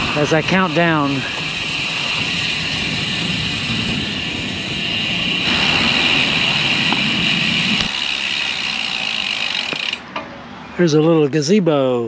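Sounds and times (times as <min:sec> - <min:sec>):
wind noise: 0:00.0 - 0:08.0
road noise: 0:00.0 - 0:12.0.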